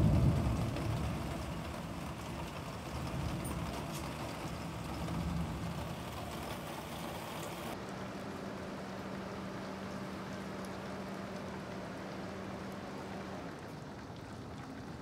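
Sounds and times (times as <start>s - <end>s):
thunder rumble: 0.0s - 7.0s
heavy rain falling: 0.0s - 15.0s.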